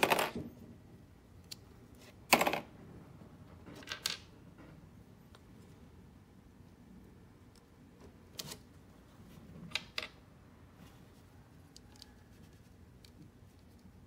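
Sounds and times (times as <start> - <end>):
plastic parts clicking and clattering: 3.6 - 4.3.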